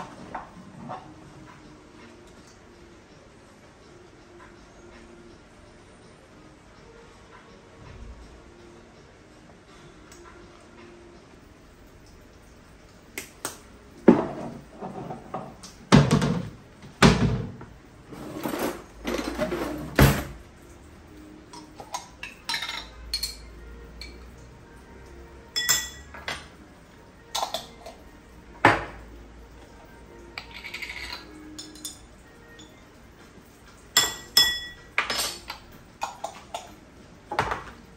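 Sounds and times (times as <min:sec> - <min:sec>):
pots and pans clattering: 0:00.0 - 0:01.4, 0:14.0 - 0:20.4, 0:21.6 - 0:23.5, 0:30.4 - 0:32.0, 0:33.9 - 0:36.7, 0:37.3 - 0:37.8.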